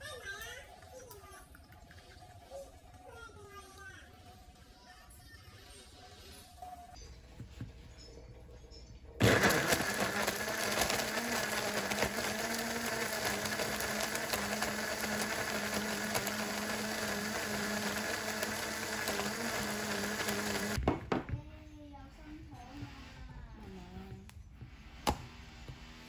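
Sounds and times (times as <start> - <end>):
blender running: 9.2 - 20.8.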